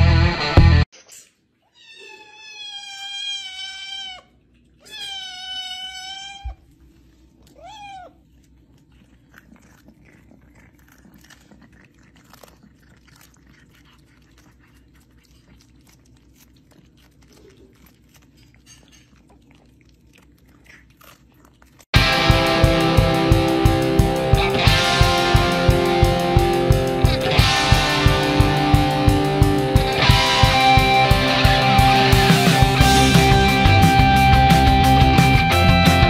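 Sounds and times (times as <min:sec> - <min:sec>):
cat meowing: 0:01.7 - 0:06.7, 0:07.4 - 0:08.2
kitten chewing cucumber: 0:04.3 - 0:21.9.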